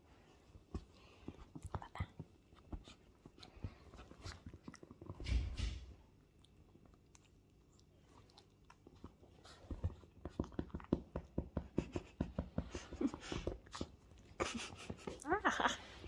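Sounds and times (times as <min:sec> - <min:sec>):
puppy chewing cloth: 0:00.4 - 0:05.2, 0:06.0 - 0:15.3.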